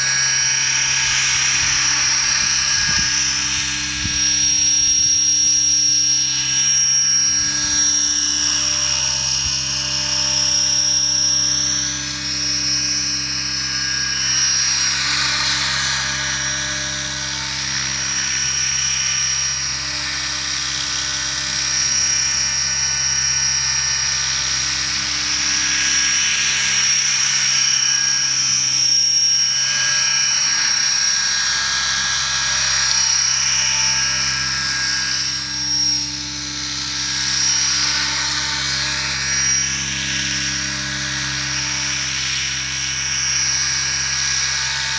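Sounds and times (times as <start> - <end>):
rc helicopter engine whine: 0.0 - 44.9.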